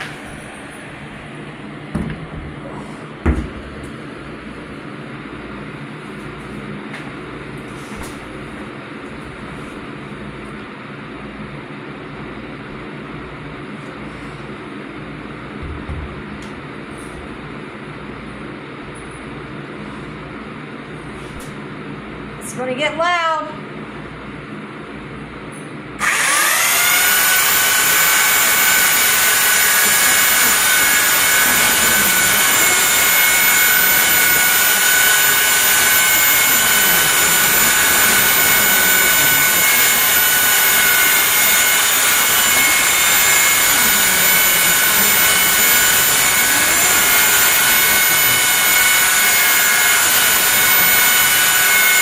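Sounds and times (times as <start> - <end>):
belt sanders sanding floor: 26.0 - 52.0.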